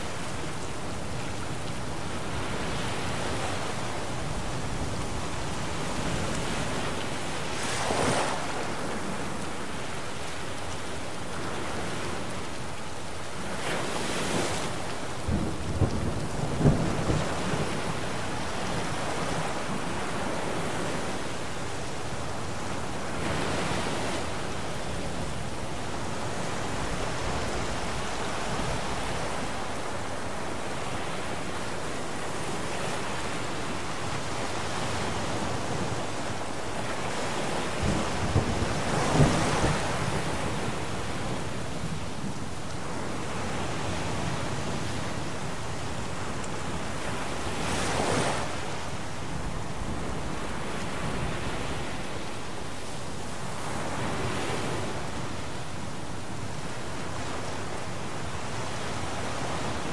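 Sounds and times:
heavy rain: 0.0 - 59.9
crackling thunderclap: 37.8 - 40.6.

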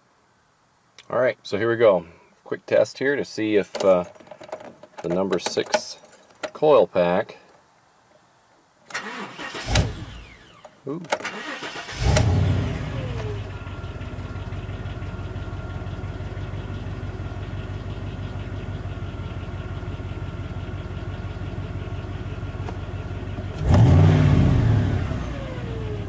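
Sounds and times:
truck engine starting and idling: 8.9 - 26.0
engine revving: 11.4 - 14.2, 23.5 - 26.0.

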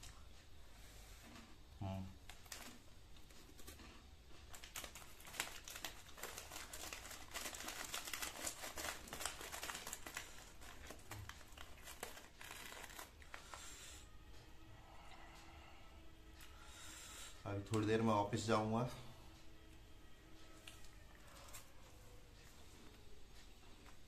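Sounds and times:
plastic packet crinkling: 4.5 - 13.6.

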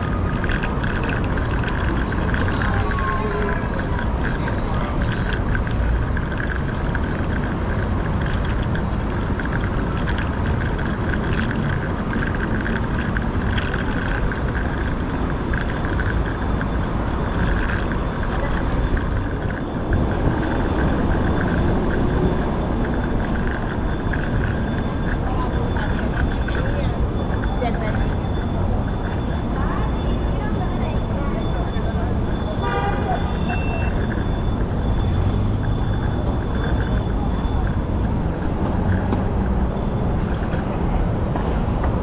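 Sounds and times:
scooter ticks and rattles: 0.0 - 42.0
wind and road noise: 0.0 - 42.0.

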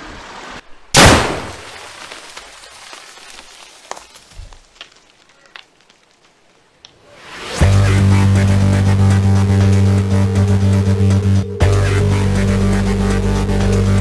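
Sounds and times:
mud and water falling: 0.0 - 7.1
loud explosion boom: 1.0 - 1.6.

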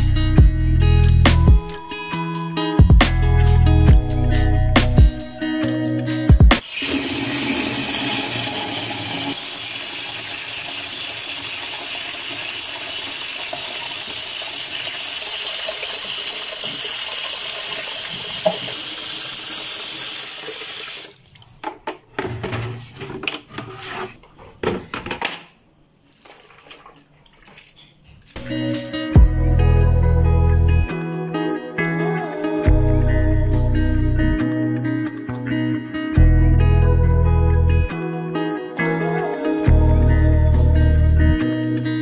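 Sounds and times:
water running into plastic bucket: 6.6 - 21.7, 26.1 - 27.8
mop and bucket clattering: 21.6 - 25.4, 26.1 - 28.0.

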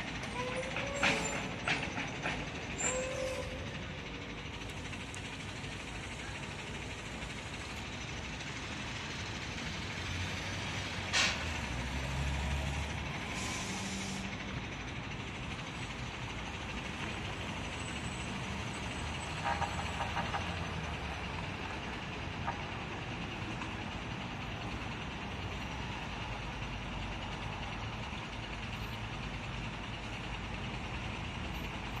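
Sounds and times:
vehicle engines running: 0.0 - 32.0
brief sharp hiss: 13.3 - 14.2.

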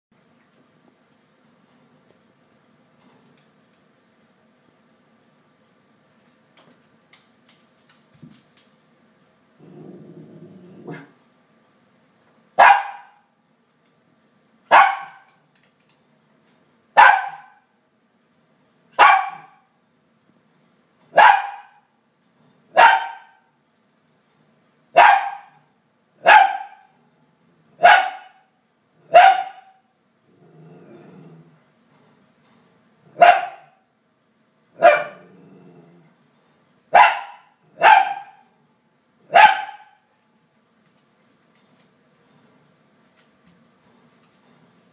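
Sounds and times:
small dog barking: 12.6 - 13.3, 14.7 - 15.2, 17.0 - 17.6, 19.0 - 19.6, 21.1 - 21.8, 22.7 - 23.4, 25.0 - 25.6, 26.2 - 26.9, 27.8 - 28.5, 29.1 - 29.8, 33.1 - 33.8, 34.8 - 35.2, 36.9 - 38.5, 39.3 - 40.0.

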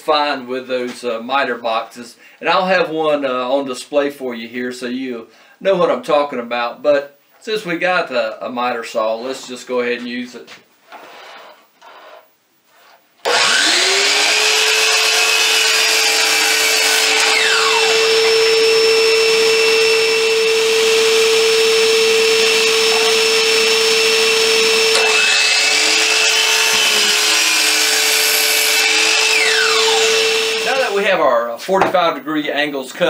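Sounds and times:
miter saw whining: 13.2 - 31.0
saw blade cutting wood: 13.2 - 31.0.

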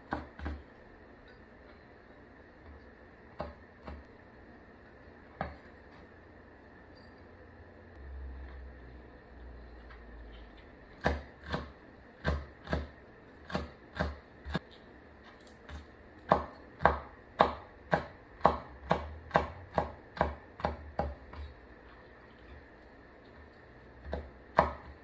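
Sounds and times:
cleaver chopping on wooden board: 16.3 - 21.3, 24.1 - 25.0.

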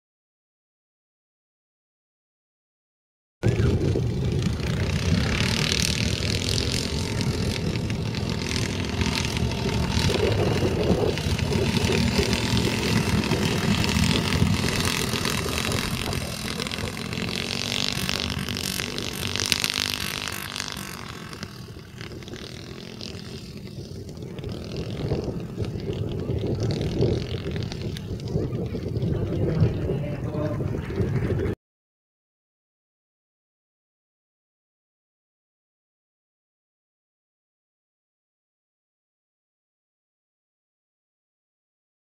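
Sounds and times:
small engine racing past: 3.4 - 31.6.

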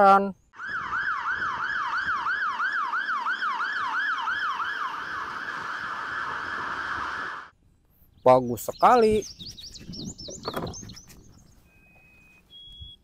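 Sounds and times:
fire engine siren: 0.6 - 7.5.

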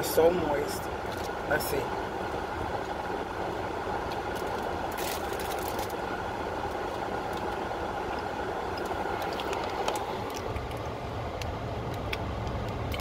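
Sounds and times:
car cabin hum and hiss: 0.0 - 13.0
faint chewing clicks: 7.3 - 13.0.

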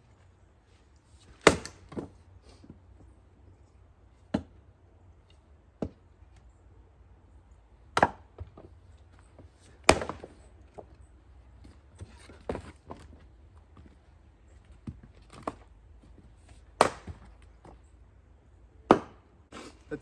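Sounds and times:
axe chopping firewood: 1.2 - 2.8, 4.2 - 4.6, 5.3 - 6.2, 7.9 - 8.8, 9.5 - 11.0, 14.8 - 15.7, 16.5 - 17.7, 18.8 - 19.7.

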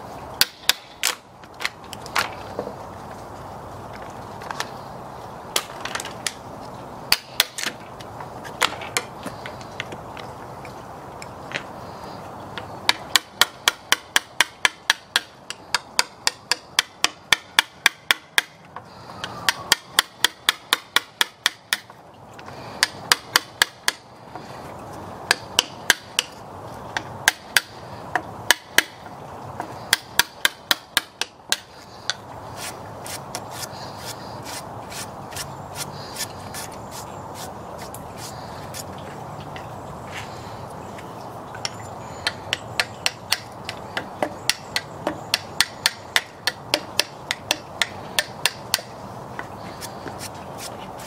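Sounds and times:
hammer striking chisel: 0.4 - 1.2, 12.9 - 18.6, 19.5 - 21.9, 22.8 - 24.0, 25.3 - 26.4, 27.2 - 27.7, 28.5 - 29.0, 29.9 - 34.6, 41.6 - 48.9
chisel scraping wood: 29.6 - 38.9.

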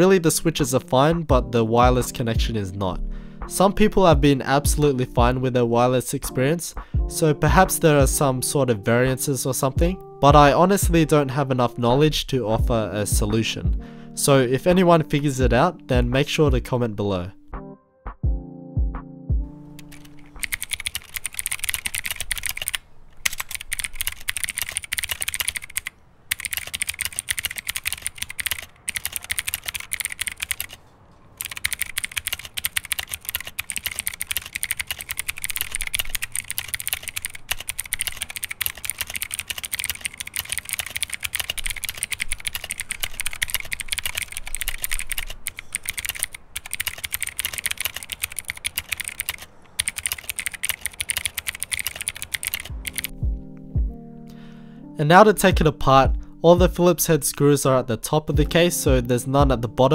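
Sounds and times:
fast typing on mechanical keyboard: 19.8 - 30.8, 31.4 - 53.2.

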